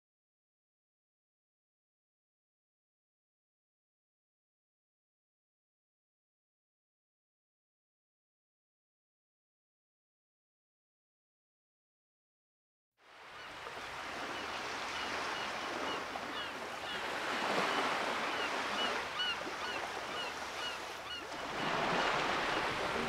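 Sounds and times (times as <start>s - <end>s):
ocean surf on beach: 13.0s - 23.0s.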